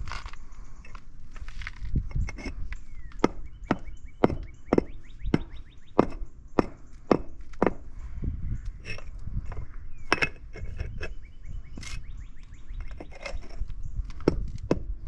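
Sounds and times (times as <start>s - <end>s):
rubber mallet striking pavers: 3.2s - 7.9s.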